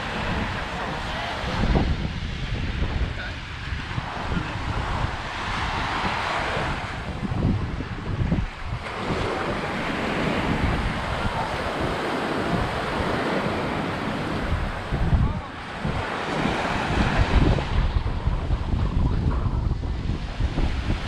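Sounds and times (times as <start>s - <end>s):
waves on a sandy shore: 0.0s - 21.0s
wind buffeting microphone: 0.0s - 21.0s.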